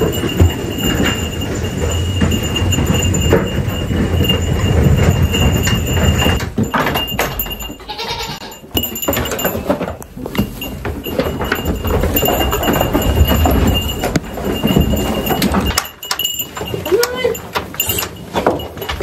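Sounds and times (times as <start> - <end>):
goat bleating: 7.8 - 8.6.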